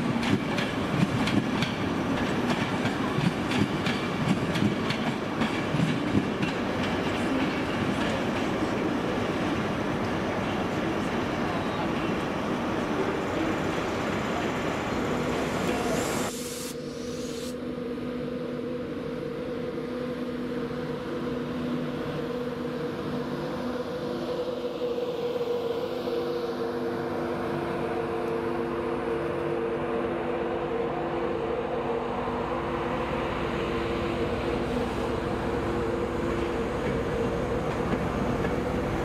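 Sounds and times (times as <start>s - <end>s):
train wheels rumbling: 0.0s - 15.9s
electric locomotive whining: 0.0s - 39.0s.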